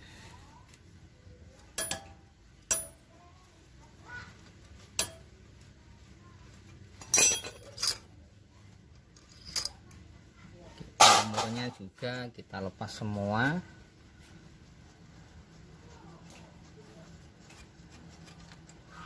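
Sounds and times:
metal tools clinking on engine: 0:07.0 - 0:08.1, 0:09.0 - 0:10.0.

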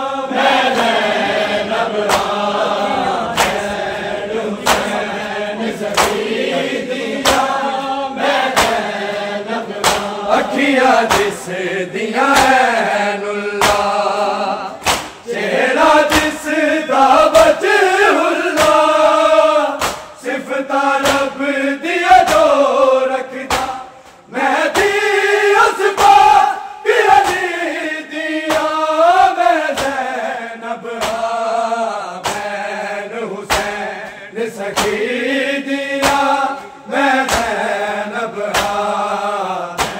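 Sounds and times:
men chanting in unison: 0:00.0 - 0:39.9
hand slaps on chest: 0:02.0 - 0:02.4, 0:03.3 - 0:03.8, 0:04.6 - 0:05.0, 0:05.9 - 0:06.3, 0:07.2 - 0:07.6, 0:08.4 - 0:09.0, 0:09.8 - 0:10.2, 0:11.0 - 0:11.5, 0:12.3 - 0:12.6, 0:13.6 - 0:13.9, 0:14.8 - 0:15.2, 0:16.0 - 0:16.4, 0:18.5 - 0:18.9, 0:19.7 - 0:20.2, 0:21.0 - 0:21.3, 0:22.2 - 0:22.6, 0:23.4 - 0:25.0, 0:27.2 - 0:27.5, 0:28.5 - 0:28.8, 0:29.6 - 0:30.1, 0:31.0 - 0:31.3, 0:32.2 - 0:32.6, 0:33.5 - 0:35.0, 0:36.0 - 0:37.6, 0:38.5 - 0:38.8.

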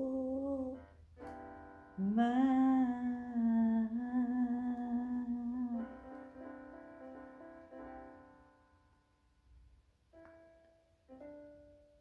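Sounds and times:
woman singing long note: 0:00.0 - 0:00.8, 0:02.0 - 0:05.9
keyboard chords: 0:00.0 - 0:12.0.

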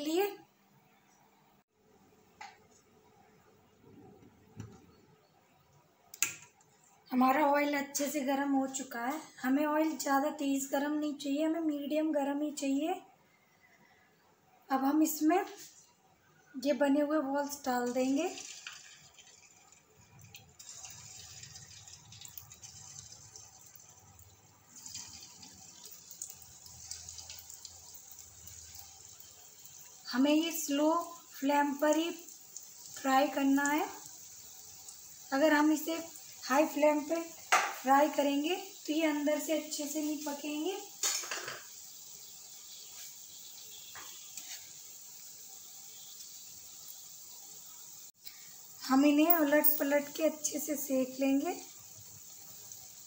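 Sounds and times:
oil bubbling and sizzling: 0:17.2 - 0:53.0.

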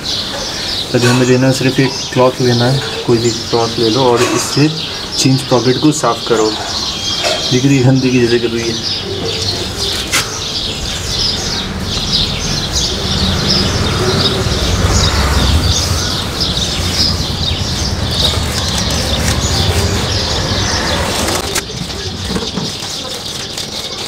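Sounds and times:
small birds chirping: 0:00.0 - 0:24.0
low rumble: 0:10.6 - 0:21.4
rag rubbing on chain: 0:16.9 - 0:24.0.

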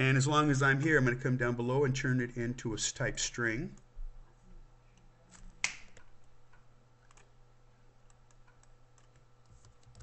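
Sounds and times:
faint low hum: 0:00.0 - 0:10.0
computer mouse clicking: 0:05.6 - 0:07.3, 0:08.0 - 0:10.0.

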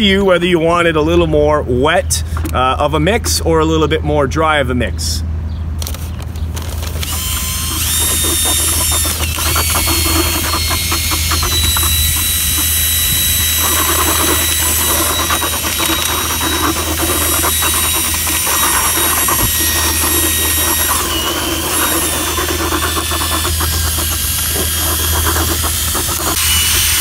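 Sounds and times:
drill paddle mixer churning mortar: 0:06.6 - 0:27.0.

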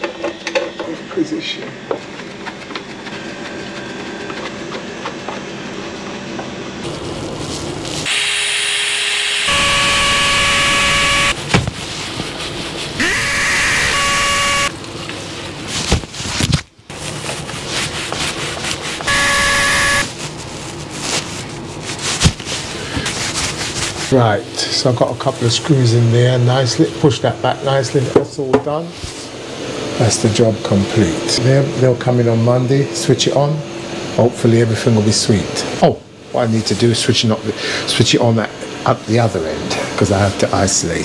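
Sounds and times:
cordless drill motor whine: 0:08.1 - 0:11.4, 0:13.0 - 0:14.7, 0:19.1 - 0:20.1.

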